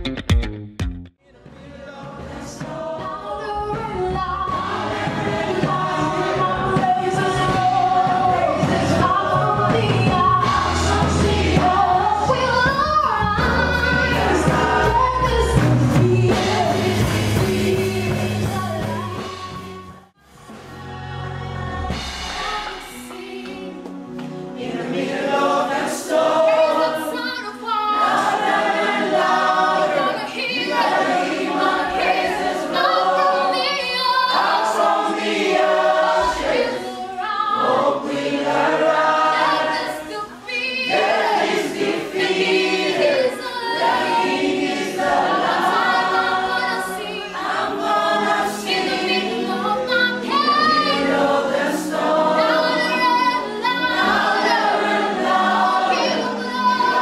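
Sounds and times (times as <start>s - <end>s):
choir singing: 1.2s - 57.0s.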